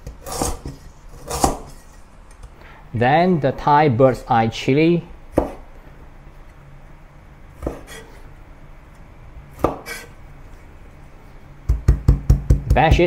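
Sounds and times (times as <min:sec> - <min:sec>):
cleaver striking wooden board: 0:09.6 - 0:10.0.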